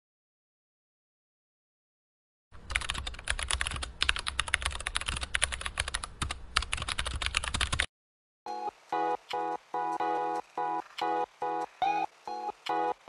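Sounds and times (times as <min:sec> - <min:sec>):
rapid typing on a keyboard: 0:02.6 - 0:07.9.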